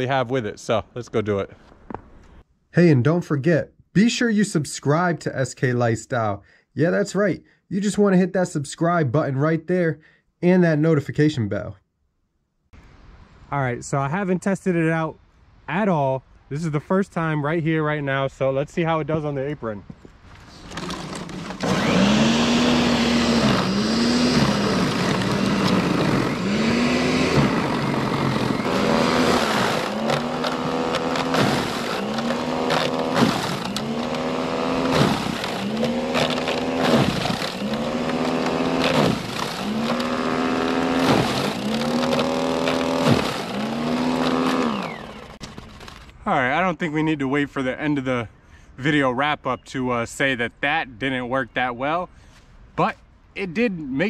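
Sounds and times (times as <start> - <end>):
snow blower motor bogging down: 20.6 - 46.0.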